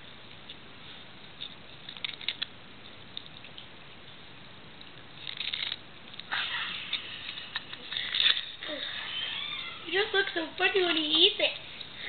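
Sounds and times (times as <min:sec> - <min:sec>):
cat crunching a cracker: 0:01.3 - 0:03.8, 0:04.8 - 0:08.6.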